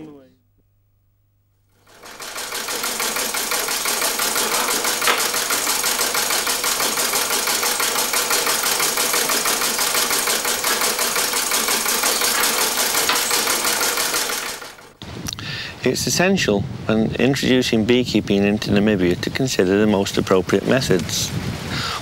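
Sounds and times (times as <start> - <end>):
sewing machine clatter: 1.8 - 15.0.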